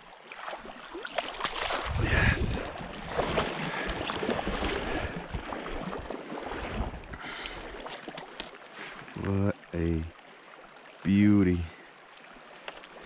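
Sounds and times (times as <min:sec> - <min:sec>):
water splashing: 0:00.0 - 0:09.7
stream water rushing: 0:00.0 - 0:13.0.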